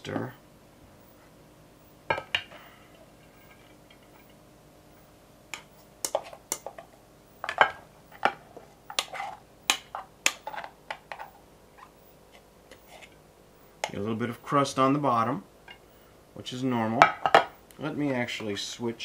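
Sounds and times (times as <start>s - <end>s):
spoon scraping and tapping metal pot: 5.5s - 6.8s, 8.9s - 11.3s.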